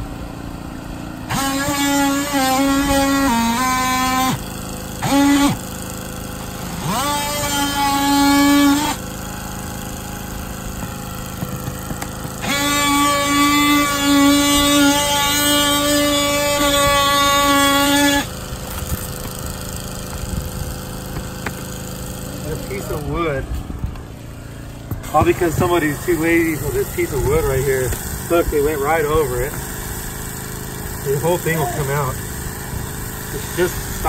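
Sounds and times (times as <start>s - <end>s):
cordless power tool buzzing: 0.0s - 34.0s.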